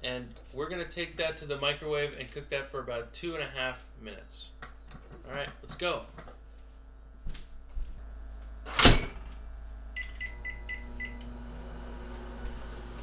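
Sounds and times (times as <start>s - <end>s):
microwave running with low hum: 0.2s - 13.0s.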